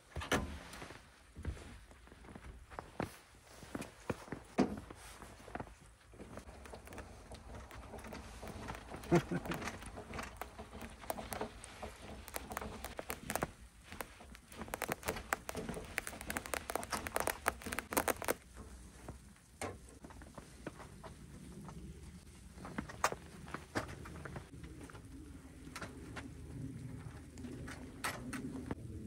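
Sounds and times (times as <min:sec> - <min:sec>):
footsteps crunching in snow: 0:00.7 - 0:18.4.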